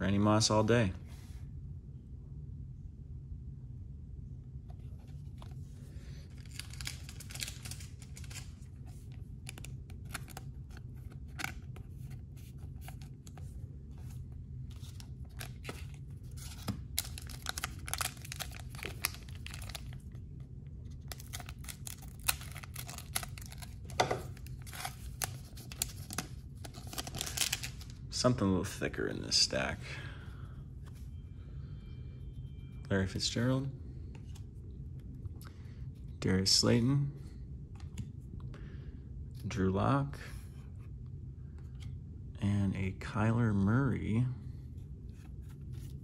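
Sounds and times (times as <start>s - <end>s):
steady low hum: 0.0s - 46.0s
foil wrapper crinkling and tearing: 6.3s - 8.7s, 14.8s - 20.2s, 21.0s - 28.0s.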